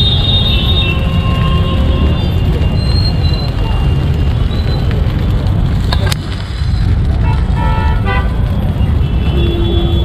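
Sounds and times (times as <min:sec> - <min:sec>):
street traffic rumble: 0:00.0 - 0:10.0.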